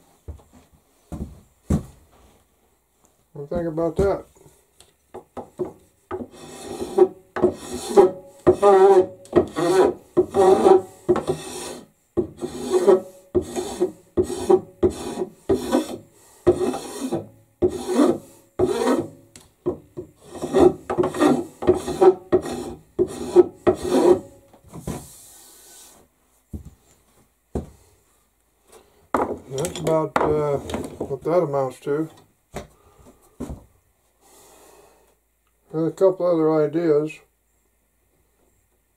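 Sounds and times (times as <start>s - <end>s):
file rasping on wood: 6.1s - 19.2s, 20.2s - 24.3s.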